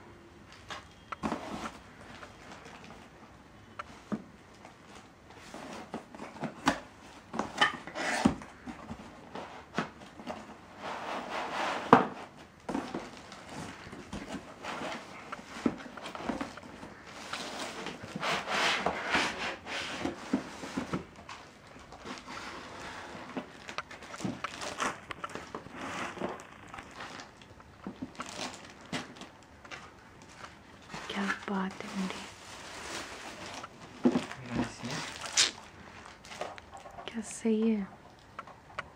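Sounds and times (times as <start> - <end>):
cardboard and foam rustling: 0.6 - 3.2, 3.9 - 37.9
plastic wrap crinkling: 20.0 - 38.9.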